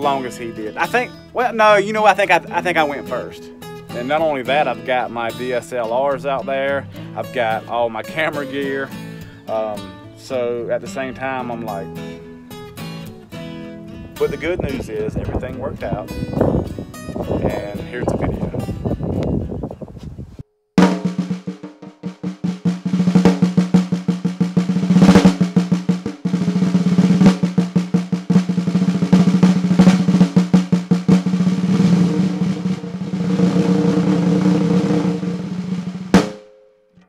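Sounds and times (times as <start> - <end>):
snare drum rolls: 20.8 - 36.5.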